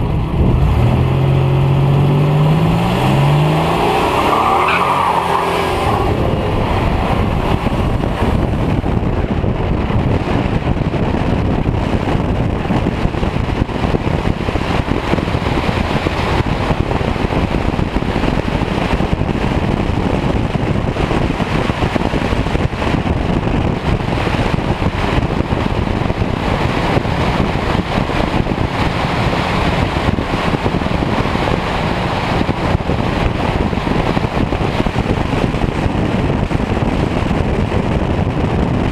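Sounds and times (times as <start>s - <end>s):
tyre and engine noise: 0.0s - 38.9s
wind buffeting microphone: 0.0s - 38.9s.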